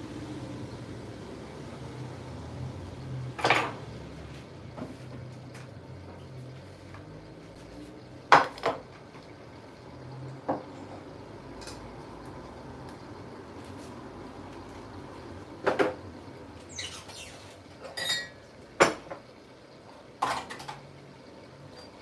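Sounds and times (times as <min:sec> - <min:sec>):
crockery and cutlery clinking: 0:17.8 - 0:18.4.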